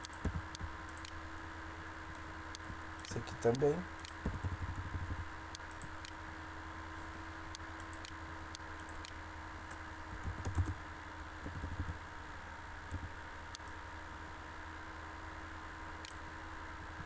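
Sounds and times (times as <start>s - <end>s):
keyboard typing: 0.0s - 1.2s, 2.6s - 6.2s, 8.8s - 9.2s, 10.1s - 10.8s, 11.4s - 12.0s
mouse clicks: 0.0s - 1.2s, 2.1s - 6.2s, 7.5s - 10.8s
electrical hum and hiss: 0.0s - 17.0s.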